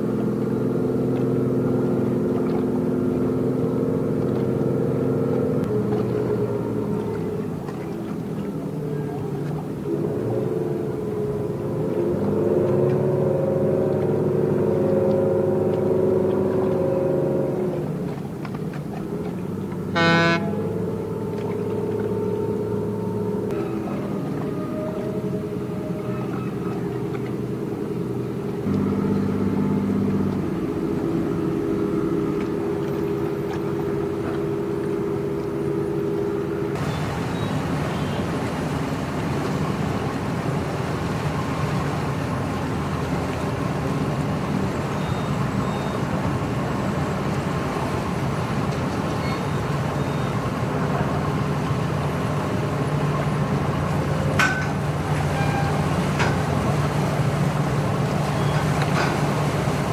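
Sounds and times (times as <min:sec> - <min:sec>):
engines droning: 0:00.0 - 0:59.9.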